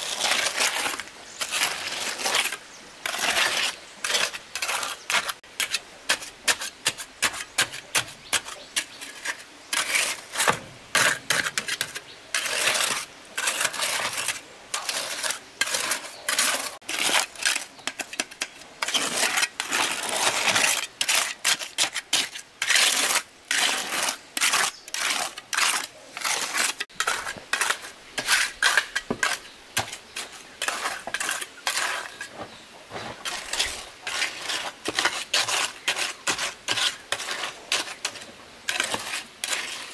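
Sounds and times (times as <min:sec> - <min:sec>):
trowel scraping wet concrete: 0:00.0 - 0:39.9.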